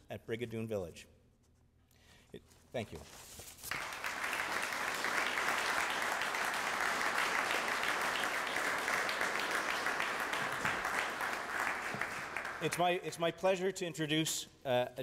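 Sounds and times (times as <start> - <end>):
audience applauding: 3.7 - 13.0.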